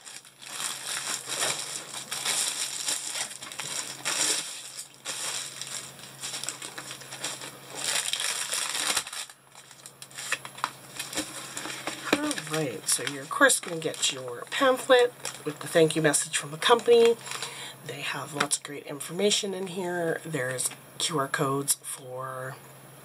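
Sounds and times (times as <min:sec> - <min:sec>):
plastic wrap crinkling: 0:00.0 - 0:17.6.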